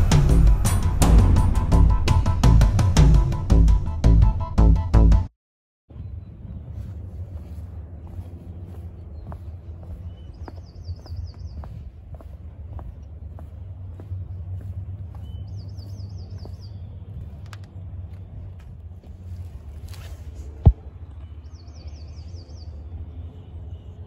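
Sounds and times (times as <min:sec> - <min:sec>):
faint footstep clicks: 0:06.8 - 0:20.8
songbird trilling: 0:15.1 - 0:16.9.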